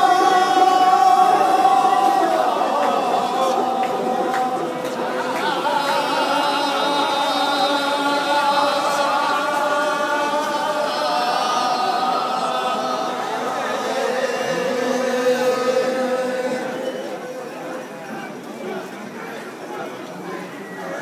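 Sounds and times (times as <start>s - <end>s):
men chanting in unison: 0.0s - 17.6s.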